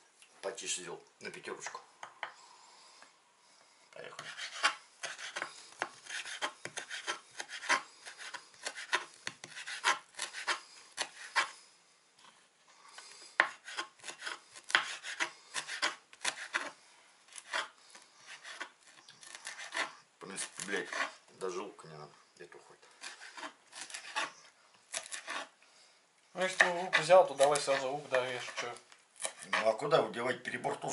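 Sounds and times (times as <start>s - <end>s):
knife chopping on wooden board: 4.2s - 11.5s, 13.4s - 16.7s.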